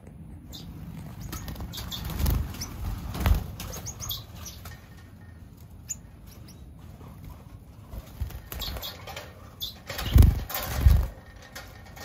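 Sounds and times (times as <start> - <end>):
small birds chirping: 0.0 - 12.0
wings flapping: 0.8 - 5.1, 7.0 - 12.0.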